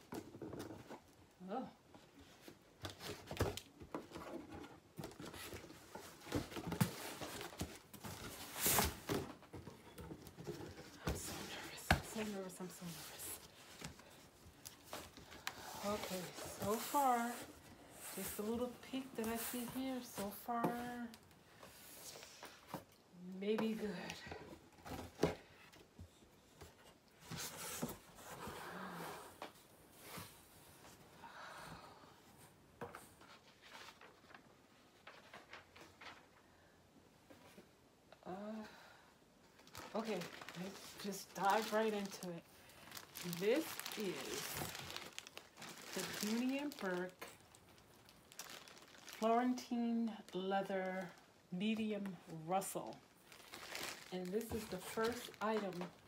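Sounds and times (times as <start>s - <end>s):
cardboard rustling and scraping: 2.2s - 22.9s, 24.6s - 30.8s, 39.7s - 47.5s.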